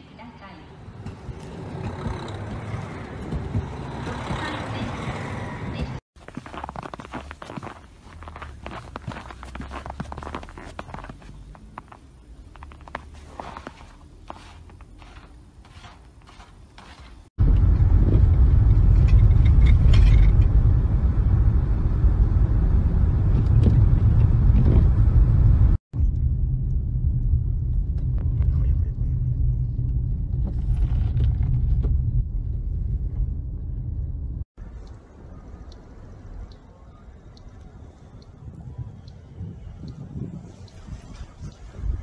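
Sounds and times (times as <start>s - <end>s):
footsteps in snow: 6.2s - 17.3s
car rumble inside cabin: 17.4s - 34.5s.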